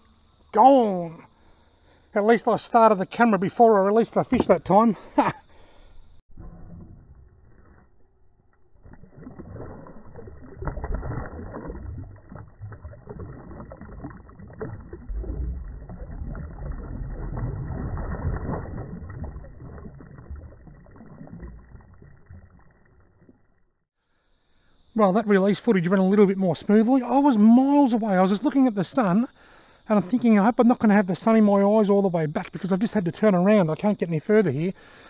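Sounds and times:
water splashing and swirling: 0:08.6 - 0:23.6.

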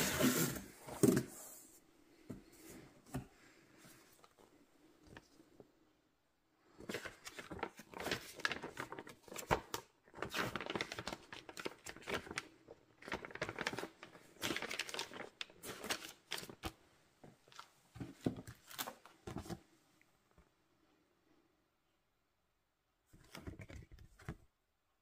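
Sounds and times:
paper rustling and crinkling: 0:06.7 - 0:16.8, 0:17.4 - 0:19.7, 0:23.1 - 0:24.5.

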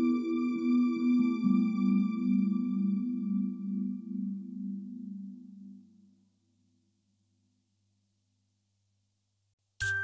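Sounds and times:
meditation music: 0:00.0 - 0:07.1
bell-like tone ringing: 0:09.8 - 0:10.0.

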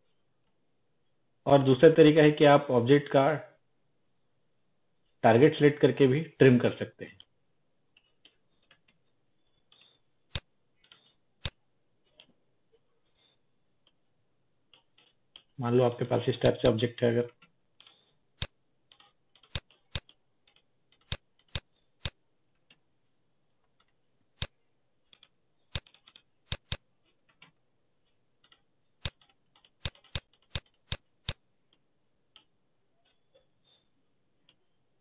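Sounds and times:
computer mouse clicks: 0:09.7 - 0:12.3, 0:16.4 - 0:16.8, 0:17.4 - 0:22.8, 0:23.7 - 0:27.6, 0:28.4 - 0:32.5
keyboard keystrokes: 0:16.4 - 0:16.8, 0:25.2 - 0:26.8, 0:28.5 - 0:31.4.

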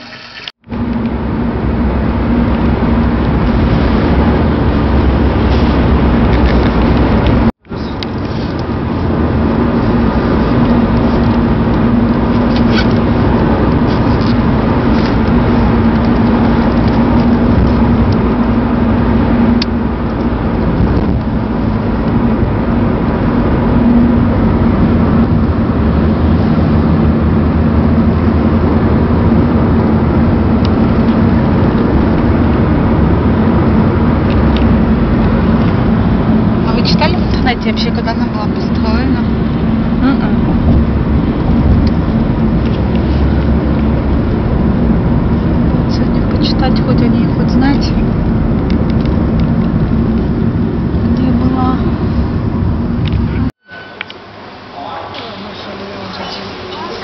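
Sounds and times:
car road and engine noise: 0:00.0 - 0:57.0.

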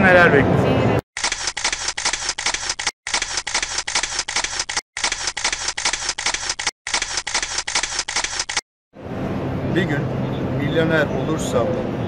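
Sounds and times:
camera shutter clicking: 0:01.2 - 0:08.6.

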